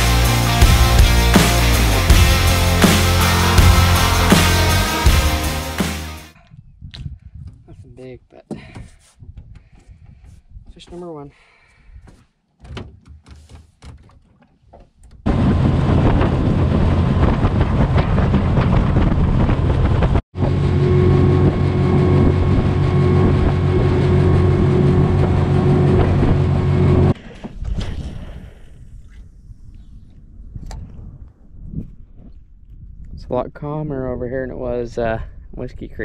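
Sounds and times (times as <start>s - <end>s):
rushing wind and water: 15.2s - 29.1s
outboard motor running: 15.3s - 27.2s.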